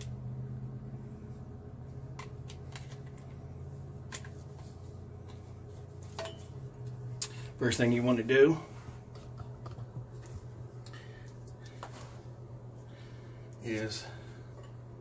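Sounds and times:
steady low hum: 0.0s - 15.0s
plastic parts clicking and rustling: 2.2s - 3.5s, 4.1s - 5.4s.

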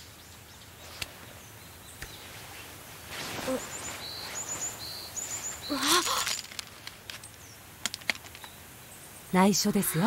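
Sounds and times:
small birds chirping: 0.0s - 10.0s
soft rustling: 2.2s - 7.3s.

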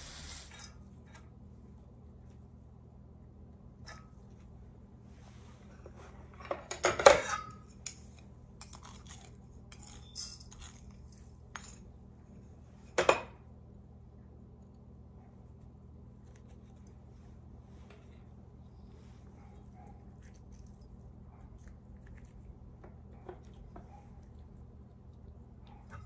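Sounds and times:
metal spoons clinking on bowls: 6.7s - 11.9s.

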